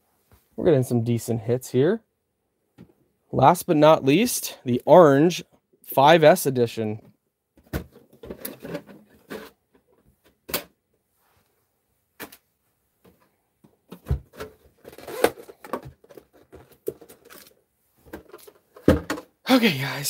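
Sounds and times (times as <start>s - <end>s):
hands handling plastic box: 13.0s - 19.3s.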